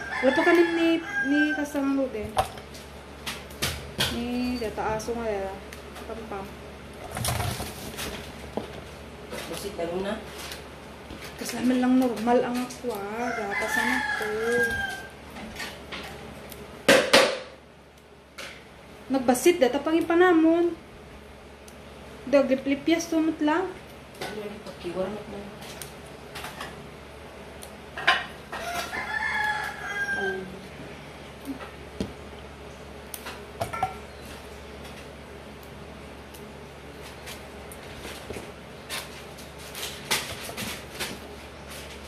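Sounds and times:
rooster crowing: 0:00.0 - 0:01.9, 0:13.1 - 0:15.2, 0:28.5 - 0:30.6.

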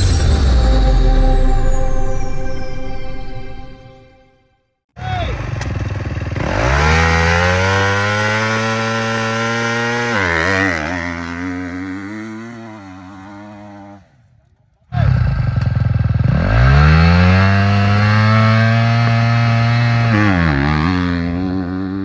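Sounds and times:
motocross engine revving: 0:05.0 - 0:14.0, 0:14.9 - 0:22.0.

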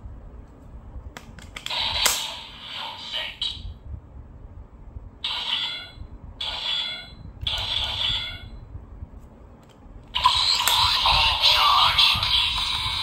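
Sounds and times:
toy sword sound effects: 0:10.2 - 0:13.0.

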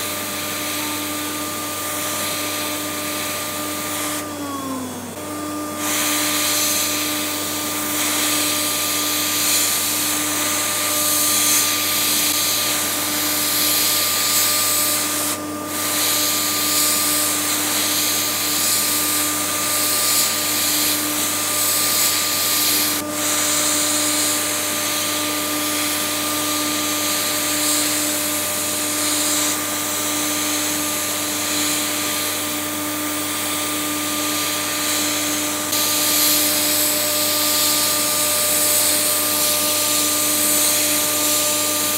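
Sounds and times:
loud steady hiss: 0:05.8 - 0:41.9.

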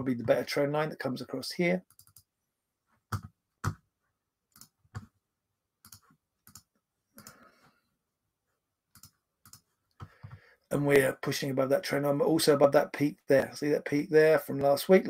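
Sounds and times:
computer mouse clicking: 0:01.9 - 0:02.3, 0:04.5 - 0:05.1, 0:05.8 - 0:07.4, 0:08.9 - 0:10.4.

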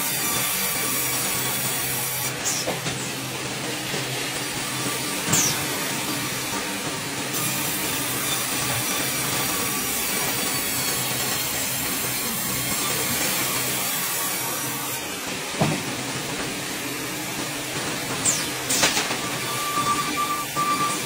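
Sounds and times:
band sawmill motor hum: 0:00.0 - 0:21.0
saw blade cutting log: 0:04.7 - 0:06.4.

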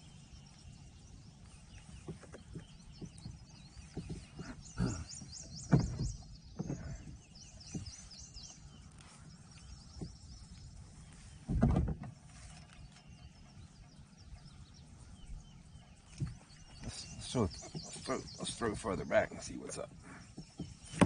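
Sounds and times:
bird high chirps: 0:00.0 - 0:11.5, 0:12.3 - 0:21.0
low thumps: 0:01.8 - 0:08.7, 0:09.3 - 0:12.4.

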